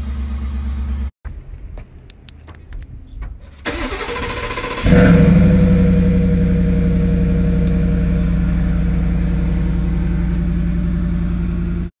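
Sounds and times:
truck engine idling: 3.6s - 11.9s.

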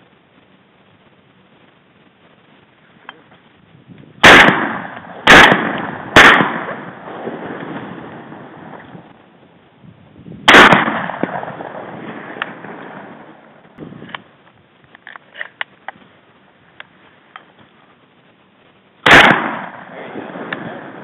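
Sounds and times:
shotgun shots echoing: 4.2s - 8.9s, 10.5s - 13.4s, 19.0s - 21.0s.

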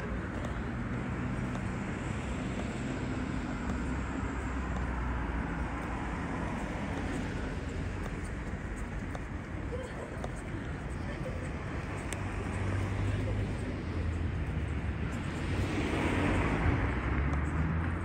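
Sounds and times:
road traffic noise: 0.0s - 18.0s.

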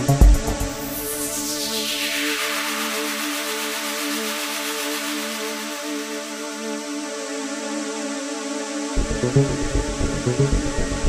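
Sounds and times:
deep bass beat: 0.0s - 1.0s, 9.0s - 11.0s
soft synthesizer chords: 0.0s - 7.2s, 8.9s - 11.0s.

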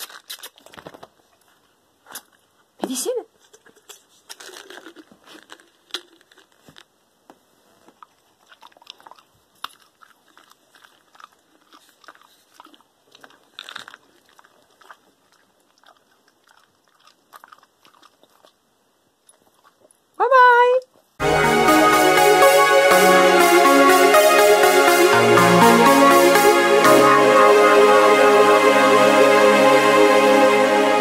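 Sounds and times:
dog chewing and crunching: 0.0s - 2.5s, 3.5s - 6.9s, 7.8s - 20.2s.

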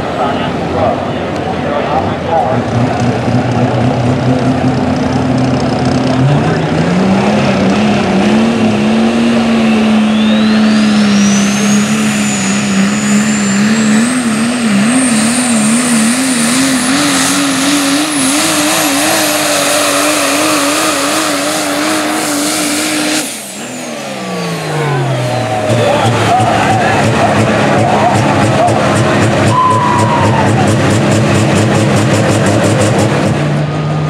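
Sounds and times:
diesel truck engine under load: 0.0s - 34.0s
turbocharger whistle: 8.3s - 33.0s.

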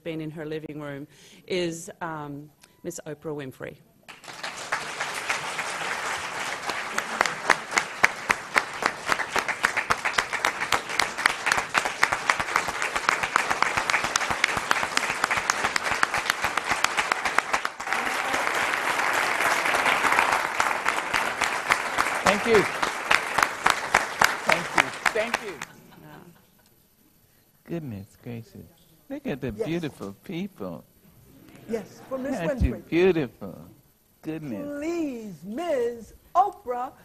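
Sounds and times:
large audience applauding: 4.1s - 25.8s.

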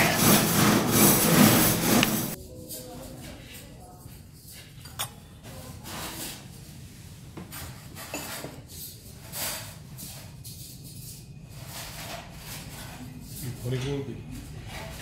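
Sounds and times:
soft rubbing noises: 0.0s - 4.8s.

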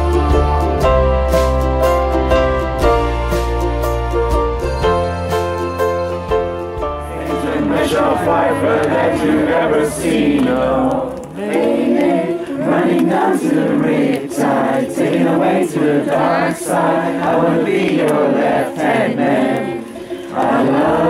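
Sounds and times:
group of voices singing: 7.0s - 21.0s.

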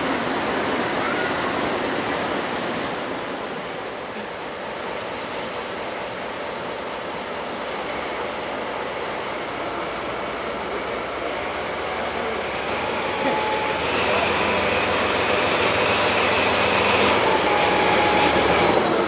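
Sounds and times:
diesel locomotive engine: 0.0s - 19.0s
train wheels rolling: 7.7s - 19.0s.

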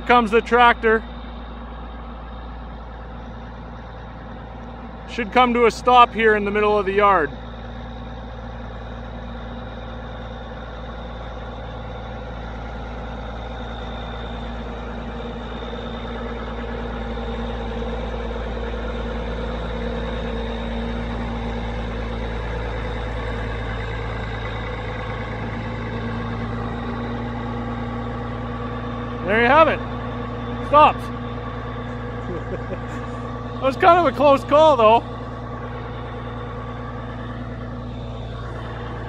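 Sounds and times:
tractor diesel engine running: 0.0s - 39.0s.

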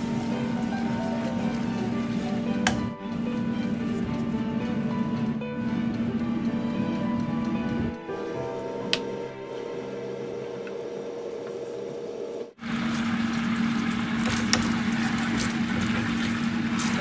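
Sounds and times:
steady hum: 0.0s - 17.0s
coconut milk bubbling in a pan: 12.6s - 17.0s.

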